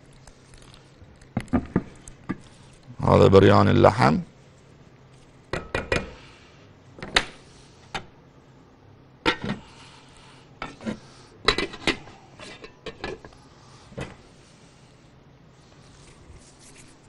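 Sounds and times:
dishes and utensils clinking: 11.5 - 13.3.

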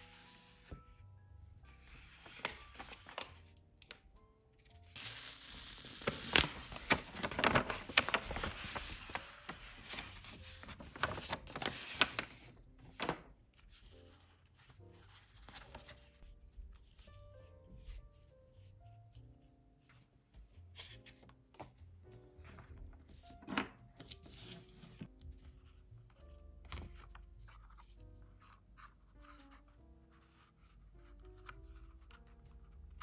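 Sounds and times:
photo prints rustling: 1.7 - 4.0, 4.6 - 18.7
sharp paper snaps: 5.0 - 8.6
paper envelope tearing open: 5.0 - 10.0, 10.6 - 12.4.

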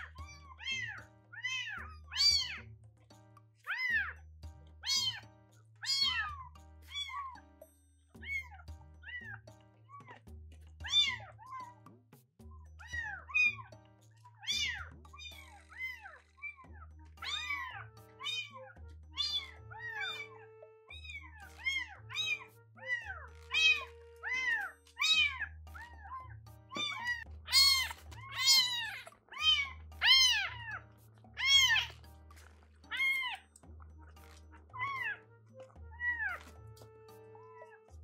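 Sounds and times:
soft background music: 0.0 - 38.0
kitten mewing: 4.8 - 7.4, 14.4 - 16.6, 17.2 - 30.8, 31.4 - 32.0, 32.8 - 33.5, 34.3 - 35.2.

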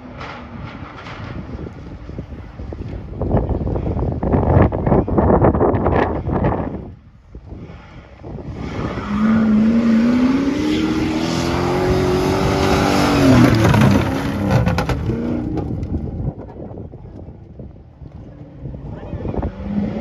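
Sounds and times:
rally car passing by: 7.7 - 16.4.

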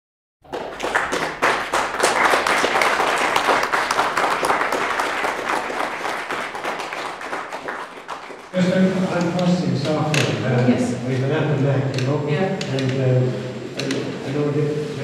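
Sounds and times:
audience applauding: 0.4 - 9.6.

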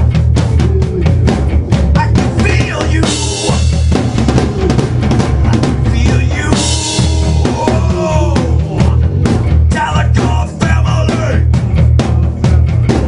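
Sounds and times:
heavy metal band playing: 0.0 - 13.0
male lead vocal singing: 2.0 - 3.6, 5.5 - 11.5
cymbal crashes: 6.6 - 9.4.

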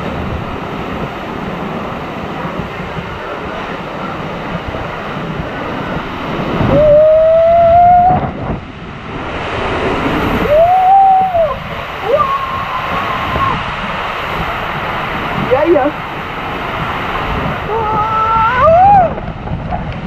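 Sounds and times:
rushing water: 0.0 - 20.0
person crying out: 17.7 - 19.2.

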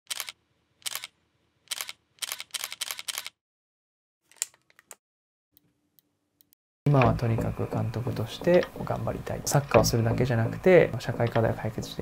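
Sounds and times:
camera shutter clicks: 0.1 - 1.1, 1.7 - 3.4.

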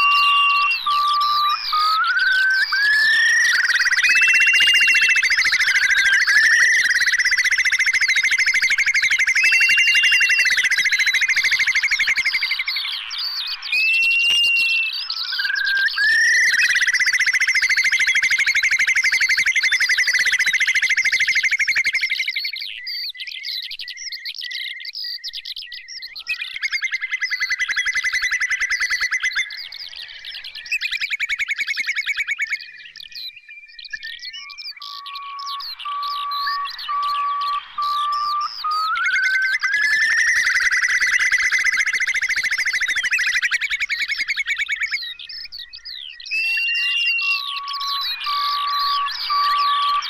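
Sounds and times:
repeating whistled note: 0.0 - 6.9, 9.0 - 12.4, 13.7 - 16.8, 35.0 - 41.3, 46.4 - 50.0
curlew calling: 0.0 - 23.2, 25.8 - 50.0
small bird chirps: 0.0 - 50.0.

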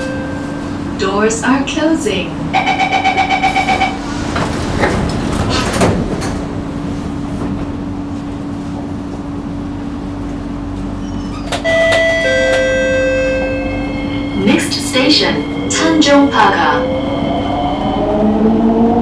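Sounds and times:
train electric hum: 0.0 - 19.0
door-closing warning beeps: 2.6 - 4.0, 11.0 - 13.6.

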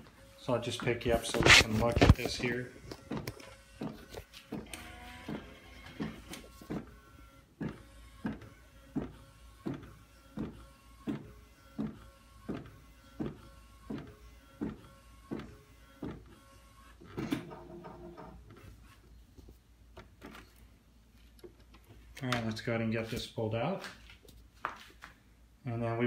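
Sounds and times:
printer motor whine: 0.0 - 17.5
printer knocking: 17.2 - 18.4.

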